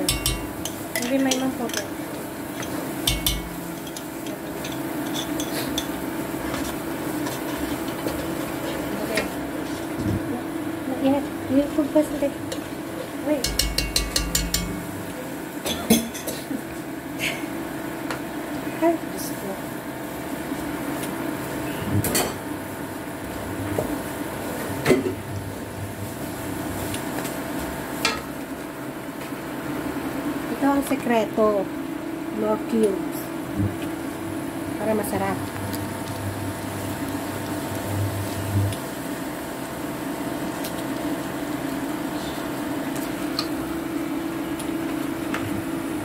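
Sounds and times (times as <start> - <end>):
spoon clicking against pot: 0.0 - 1.9, 2.6 - 5.9, 13.4 - 14.8
steady low hum: 0.0 - 19.6
kitchen hum: 0.0 - 46.0
metal spoon scraping a pot: 2.6 - 6.0.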